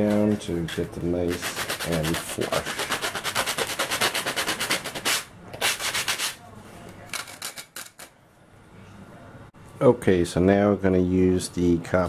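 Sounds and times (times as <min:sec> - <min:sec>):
sandpaper rubbing on wood: 0:01.1 - 0:06.4.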